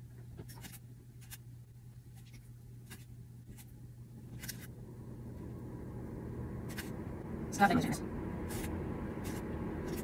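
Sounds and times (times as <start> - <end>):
steady low hum: 0.0 - 10.0
low rumble: 4.8 - 10.0.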